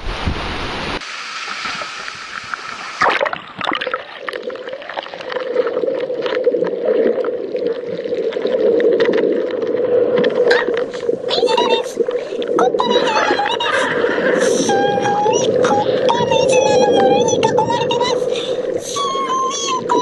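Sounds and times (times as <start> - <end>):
surf washing over rocks: 0.0 - 3.3, 8.7 - 20.0
muffled underwater surf rush: 0.0 - 20.0
splash: 0.0 - 20.0.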